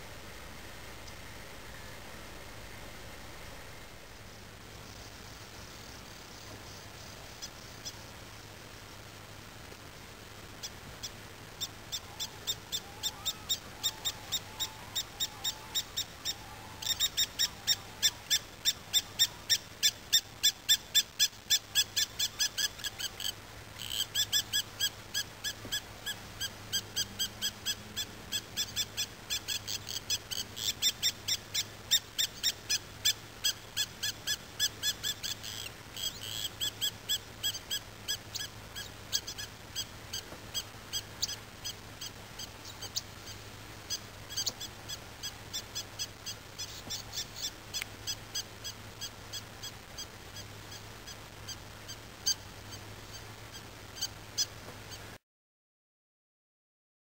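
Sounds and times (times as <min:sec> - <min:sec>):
short high calls: 0:10.6 - 0:55.1.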